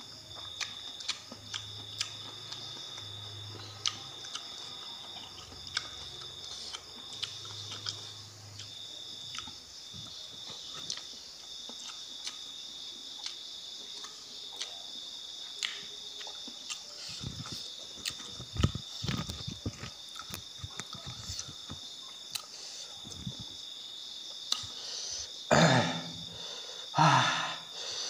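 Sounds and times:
crickets chirring: 0:00.0 - 0:28.0
chewing clicks and smacks: 0:00.3 - 0:09.6, 0:10.4 - 0:12.5, 0:13.2 - 0:23.5, 0:24.5 - 0:24.8.

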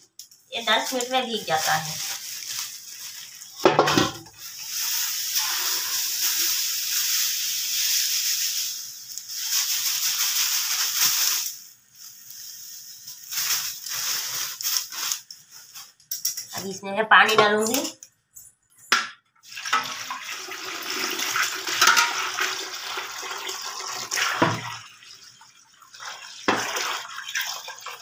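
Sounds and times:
plastic bag crinkling: 0:00.6 - 0:16.0
grains pouring into steel vessel: 0:04.3 - 0:15.2, 0:19.5 - 0:24.2.

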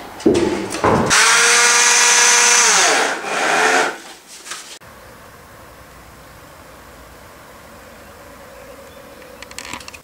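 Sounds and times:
power drill whining: 0:01.1 - 0:04.1.

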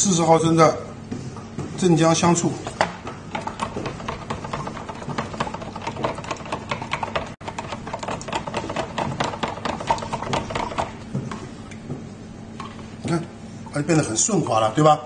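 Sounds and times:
metal spoon stirring in plastic jug: 0:02.6 - 0:11.5.

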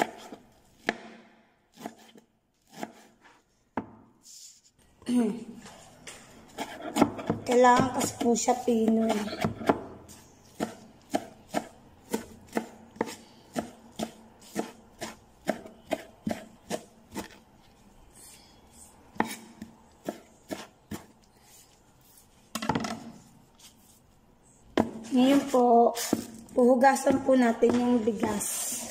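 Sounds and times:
knife chopping on plastic board: 0:00.0 - 0:03.2, 0:06.5 - 0:17.4, 0:19.2 - 0:21.1, 0:24.8 - 0:26.4, 0:27.0 - 0:28.4.

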